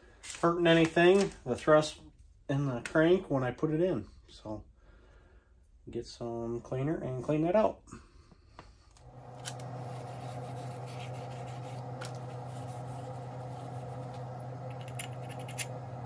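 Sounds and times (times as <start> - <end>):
steady hum: 9.0 - 16.0
metal scraping and rubbing: 9.2 - 16.0.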